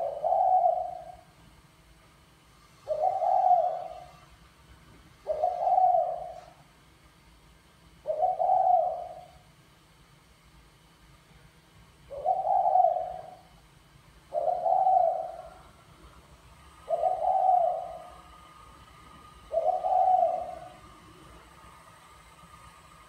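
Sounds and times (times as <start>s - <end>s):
dove cooing: 0.0s - 1.3s, 2.8s - 4.3s, 5.2s - 6.6s, 8.0s - 9.5s, 12.1s - 13.6s, 14.3s - 16.0s, 16.7s - 18.6s, 19.3s - 21.5s.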